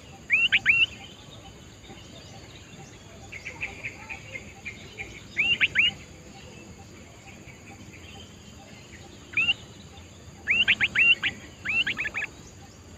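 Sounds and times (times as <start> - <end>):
bird whistled calls: 0.0 - 1.2, 3.5 - 6.0, 9.3 - 9.6, 10.4 - 12.4
high insect drone: 0.0 - 12.9.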